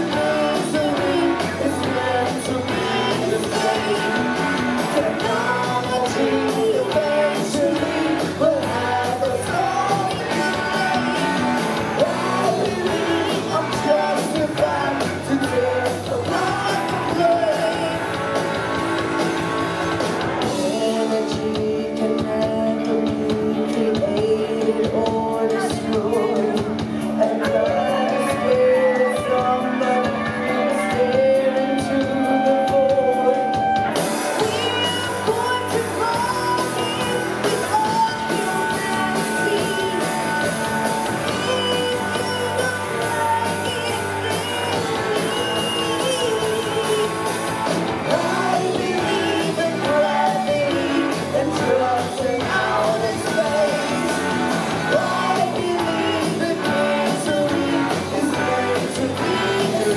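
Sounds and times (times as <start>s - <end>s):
live rock band playing: 0.0s - 59.9s
woman singing: 20.6s - 33.4s, 34.4s - 47.1s.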